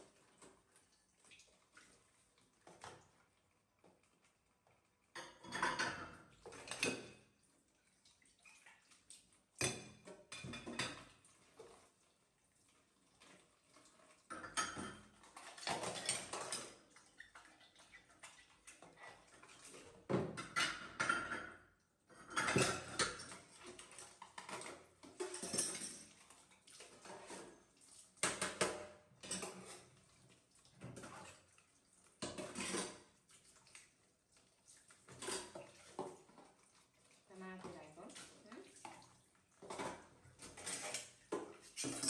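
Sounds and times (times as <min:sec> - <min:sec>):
tap water splashing: 0:00.1 - 0:04.3, 0:26.2 - 0:41.8
dishes clinking and clattering: 0:05.1 - 0:07.3, 0:09.6 - 0:11.2, 0:14.3 - 0:16.8, 0:20.0 - 0:26.2, 0:28.2 - 0:30.0, 0:32.2 - 0:33.1, 0:35.1 - 0:36.2, 0:39.6 - 0:42.0.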